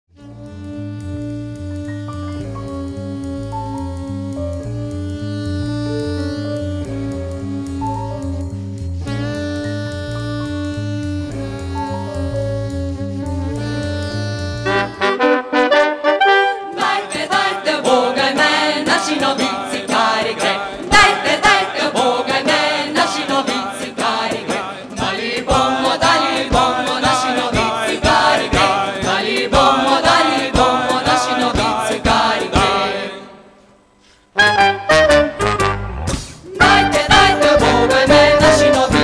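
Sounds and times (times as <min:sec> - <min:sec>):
hand percussion: 0:00.2 - 0:14.9, 0:16.7 - 0:32.9, 0:36.1 - 0:39.0
group of voices singing: 0:16.5 - 0:33.6, 0:36.5 - 0:39.0.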